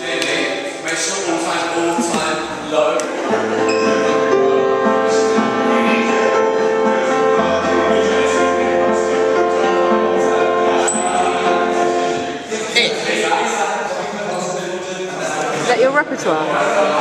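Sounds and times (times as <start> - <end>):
sustained keyboard chords: 2.0 - 13.4.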